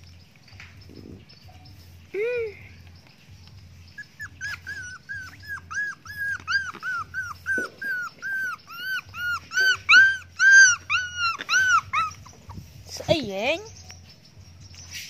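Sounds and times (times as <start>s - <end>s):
puppy whining: 3.6s - 12.8s.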